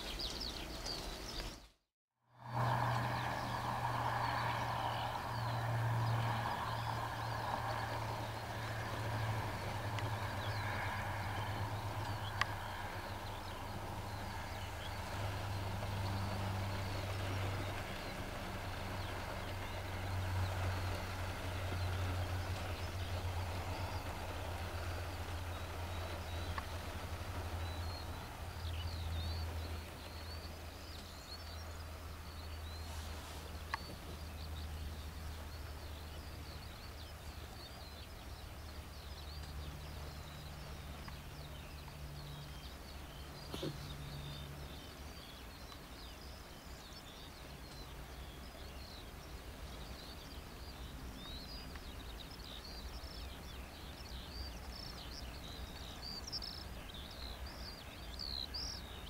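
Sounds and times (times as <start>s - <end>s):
birds chirping: 0.0s - 1.8s, 2.4s - 59.0s
distant diesel locomotive drone: 2.3s - 59.0s.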